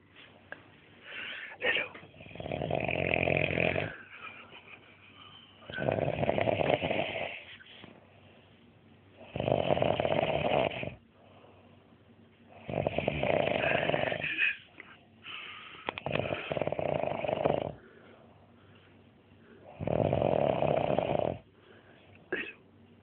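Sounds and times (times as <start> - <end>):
quiet breathing: 0.0 - 2.7, 3.3 - 9.7, 10.8 - 22.6
man snoring loudly: 2.1 - 4.0, 5.7 - 7.4, 9.2 - 11.0, 12.6 - 14.4, 16.0 - 17.8, 19.7 - 21.4.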